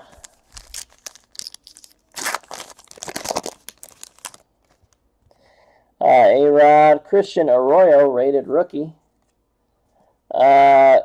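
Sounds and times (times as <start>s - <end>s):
wrapper tearing and crinkling: 0.0s - 5.0s.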